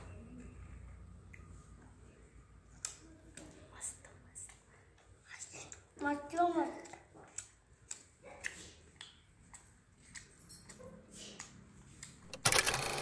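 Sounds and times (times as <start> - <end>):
child chewing: 6.8 - 12.2.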